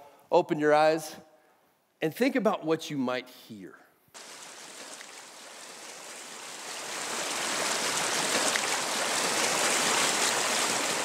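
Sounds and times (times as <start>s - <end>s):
stream running over rocks: 4.2s - 11.0s.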